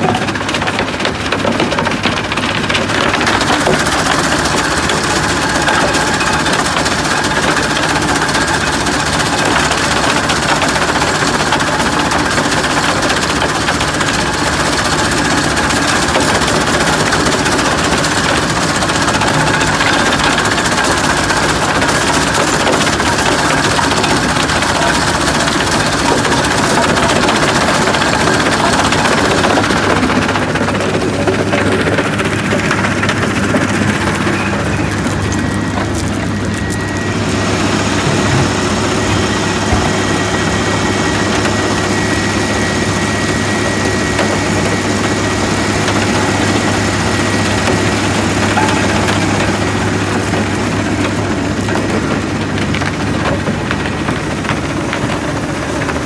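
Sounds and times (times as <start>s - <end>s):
conveyor belt running: 0.0s - 56.0s
diesel engine: 0.0s - 56.0s
vibrating screen sifting soil: 0.0s - 56.0s
soil and stones tumbling: 13.9s - 56.0s.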